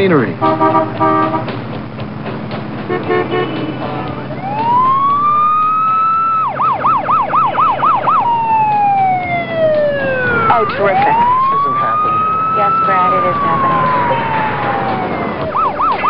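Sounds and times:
police siren wailing and yelping: 4.3 - 16.0.

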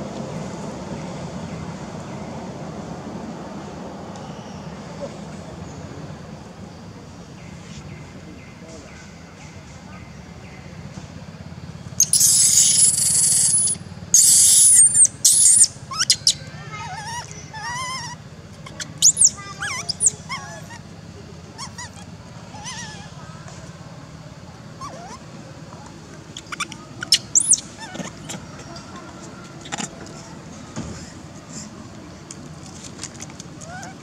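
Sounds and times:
whimpers and squeaks: 12.0 - 20.8, 21.5 - 23.2, 24.8 - 25.3, 26.4 - 30.4, 33.6 - 34.0
baby monkey screaming: 12.0 - 20.9, 21.5 - 23.3, 24.8 - 25.3, 26.3 - 29.9, 33.6 - 34.0.

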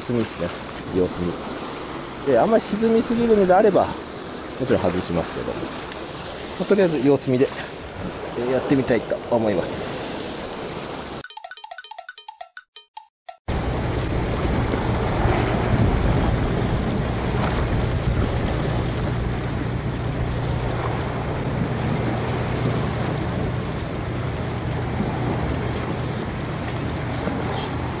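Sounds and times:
wind on microphone: 13.5 - 24.0
sea washing against rocks: 13.5 - 28.0.

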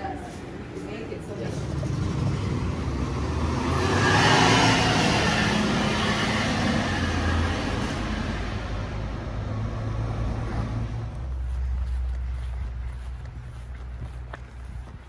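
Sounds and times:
vehicle passing: 0.8 - 15.0
low engine hum: 7.7 - 15.0.

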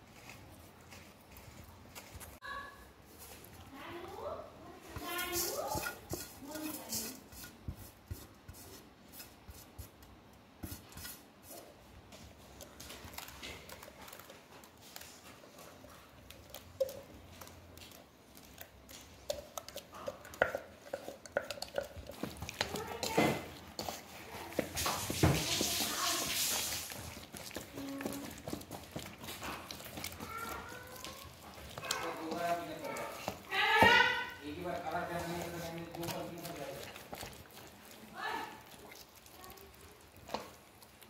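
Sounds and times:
clinks and scrapes on metal bowl: 4.9 - 8.2, 18.5 - 40.6.

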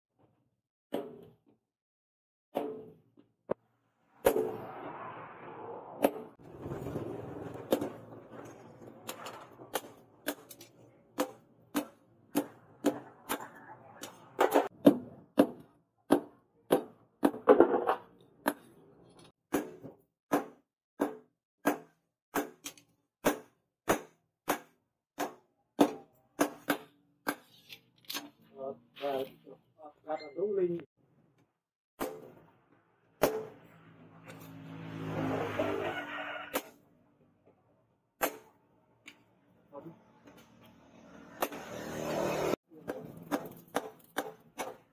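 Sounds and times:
rushing noise: 4.1 - 8.8.

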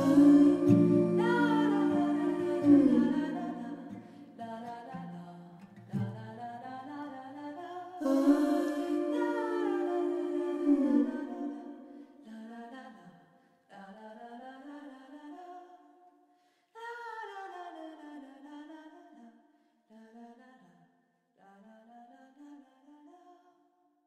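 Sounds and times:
woman humming: 0.0 - 4.0, 8.0 - 11.7.

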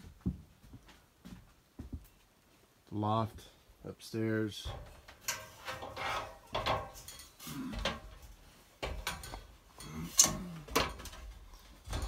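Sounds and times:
footfalls on metal ladder: 4.6 - 12.0.

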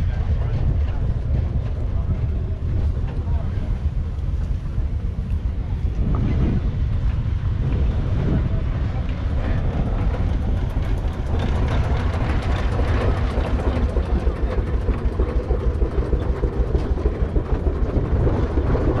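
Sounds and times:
heavy engine idling: 6.9 - 19.0.

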